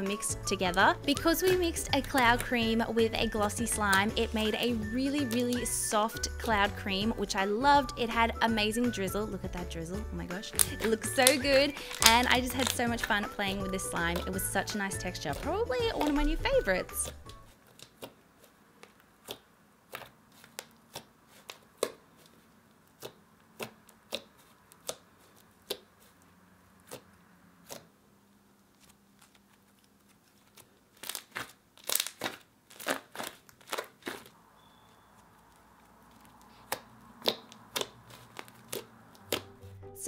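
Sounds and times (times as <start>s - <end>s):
slime squished by hand: 10.5s - 13.1s, 28.8s - 34.4s, 35.2s - 39.7s.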